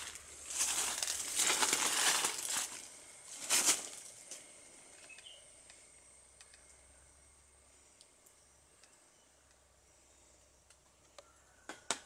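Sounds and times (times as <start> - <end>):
leaves rustling: 0.0 - 4.5.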